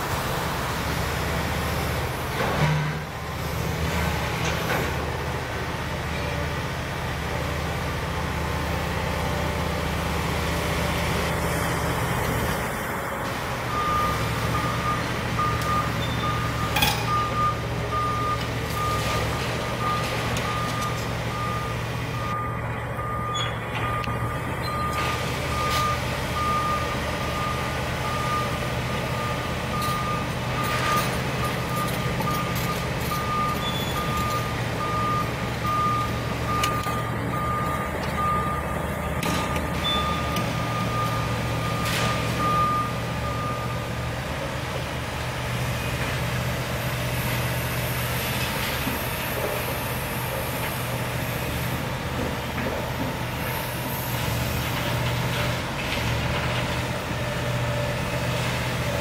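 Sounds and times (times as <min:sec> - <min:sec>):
excavator diesel engine running: 0:00.0 - 0:59.0
travel alarm beeping: 0:19.8 - 0:25.0, 0:29.2 - 0:38.8, 0:39.4 - 0:43.8.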